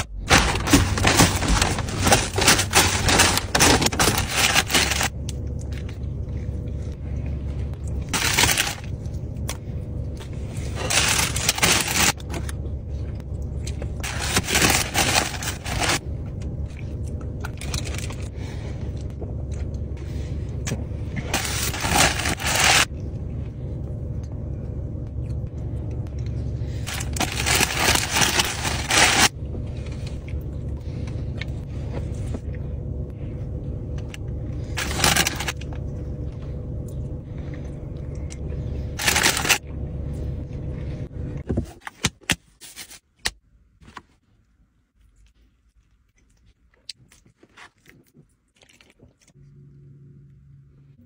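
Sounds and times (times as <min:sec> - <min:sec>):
paper wrappers crinkling: 0:00.0 - 0:05.9, 0:08.0 - 0:09.2, 0:10.4 - 0:12.5, 0:14.0 - 0:16.0, 0:21.3 - 0:22.9, 0:26.6 - 0:30.2, 0:34.6 - 0:35.7, 0:38.8 - 0:39.6
low hum in car cabin: 0:00.0 - 0:51.0.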